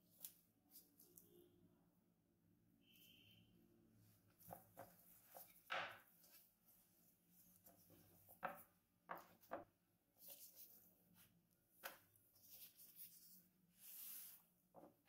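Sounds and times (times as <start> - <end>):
dough rubbing and rustling: 4.2 - 8.6.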